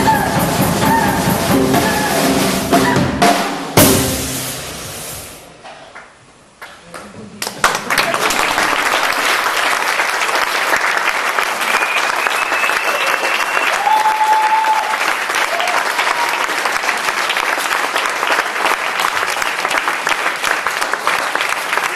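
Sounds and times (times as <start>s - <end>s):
audience applauding: 6.0s - 21.9s.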